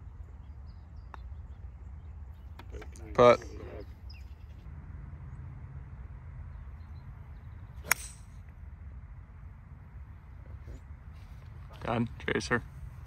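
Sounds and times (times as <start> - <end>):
golf club striking ball: 7.8 - 8.5.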